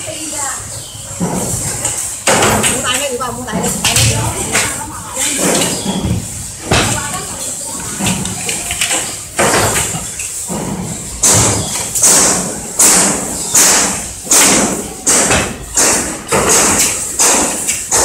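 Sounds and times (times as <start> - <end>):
irregular knocks: 5.4 - 18.0.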